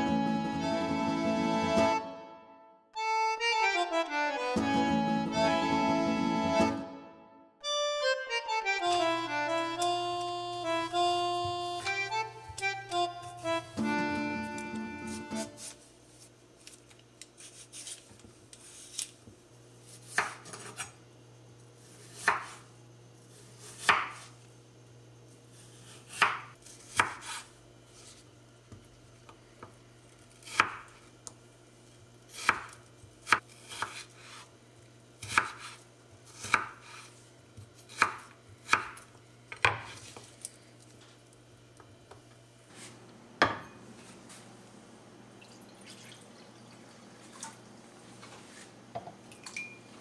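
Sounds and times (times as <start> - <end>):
knife cutting potato on board: 19.9 - 21.0, 22.0 - 22.6, 23.6 - 24.4, 25.7 - 28.2, 30.3 - 31.0, 32.3 - 34.5, 35.2 - 40.2.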